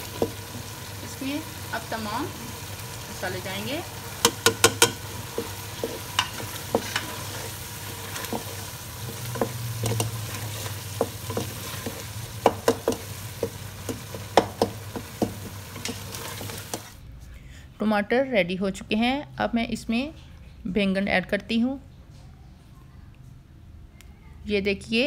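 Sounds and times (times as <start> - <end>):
frying sizzle: 0.0 - 17.0
spatula clicking against pot: 4.2 - 5.0, 9.4 - 10.2
spatula scraping a pot: 4.2 - 14.4, 15.0 - 17.0.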